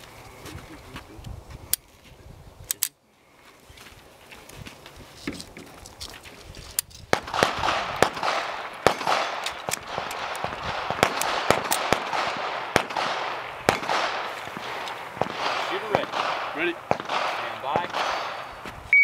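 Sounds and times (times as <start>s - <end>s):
pistol shots hitting steel targets: 7.1s - 18.6s.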